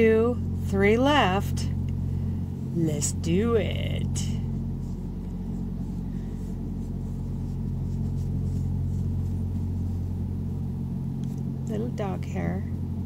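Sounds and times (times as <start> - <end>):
steady low hum: 0.0 - 13.0
yarn rustling with crochet hook: 4.6 - 10.2.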